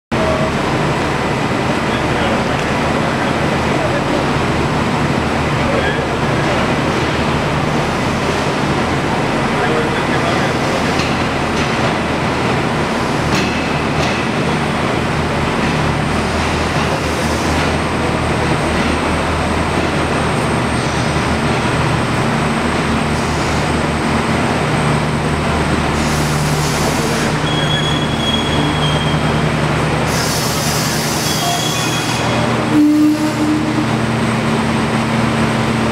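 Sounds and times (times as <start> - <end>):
train rumbling with low hum: 0.1 - 35.9
high-pitched wheel squeals: 27.4 - 29.3, 31.2 - 32.4.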